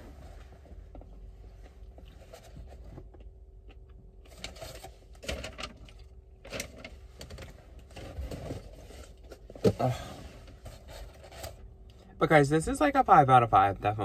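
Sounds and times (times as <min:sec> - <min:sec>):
rustling and scrapes in car seat: 0:00.0 - 0:03.2, 0:06.7 - 0:11.6.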